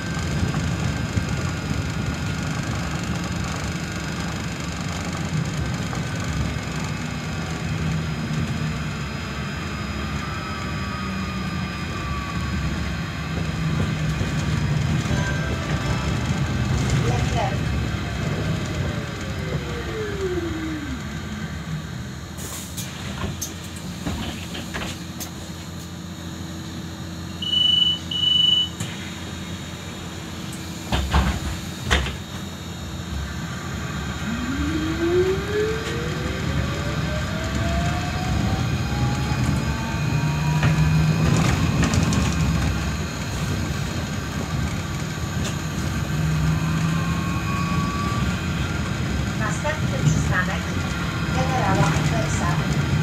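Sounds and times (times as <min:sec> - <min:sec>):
short high beeps: 0:27.4 - 0:28.8
electric motor whine: 0:32.7 - 0:41.7.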